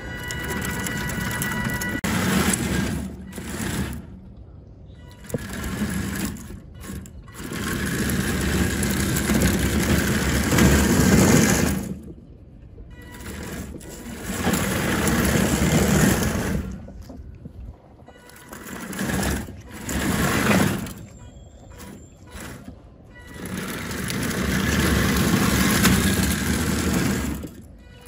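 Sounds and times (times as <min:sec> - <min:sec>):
metal track slats clattering: 0:18.4 - 0:27.7.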